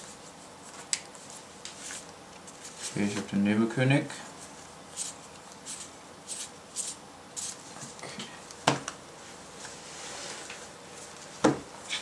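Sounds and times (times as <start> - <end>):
soft rustling of cards: 0.0 - 3.6, 4.2 - 8.0.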